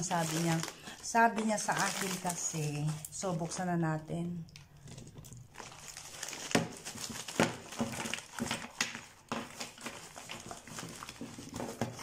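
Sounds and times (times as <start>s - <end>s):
envelope rustling and crinkling: 0.0s - 3.8s, 4.6s - 12.0s.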